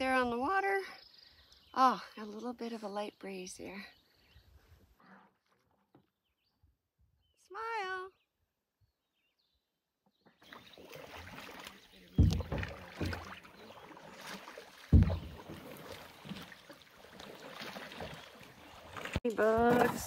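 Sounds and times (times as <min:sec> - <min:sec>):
paddle splashing in water: 0:10.4 - 0:20.0
heavy low thumps: 0:12.2 - 0:12.8, 0:15.0 - 0:15.4.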